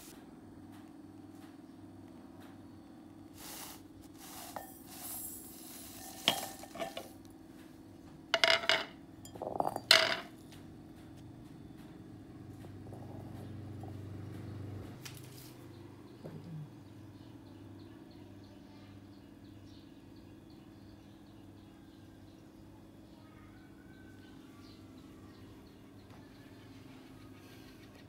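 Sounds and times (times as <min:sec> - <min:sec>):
ceramic dish knocking on metal mortar: 0:08.4 - 0:10.3.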